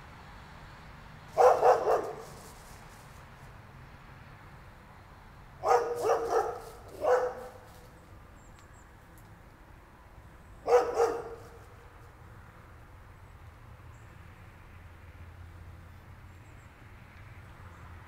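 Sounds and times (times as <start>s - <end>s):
dog barking: 1.4s - 2.4s, 5.6s - 7.7s, 10.6s - 11.6s.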